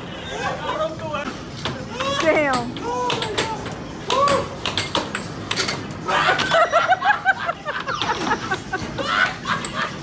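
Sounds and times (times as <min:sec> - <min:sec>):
man laughing hard: 0:06.0 - 0:10.0.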